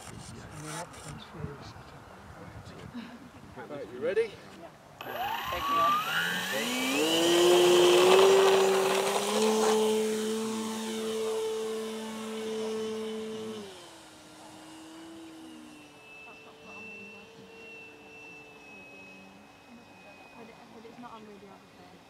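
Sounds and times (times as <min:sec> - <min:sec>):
model plane motor whining: 0:05.0 - 0:22.0.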